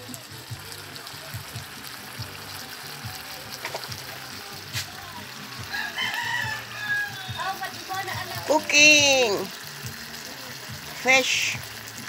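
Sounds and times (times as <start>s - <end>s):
music: 0.0s - 12.0s
sauce bubbling in frying pan: 0.0s - 12.0s
sharp pop from pan: 3.6s - 3.9s
person speaking: 10.9s - 11.6s.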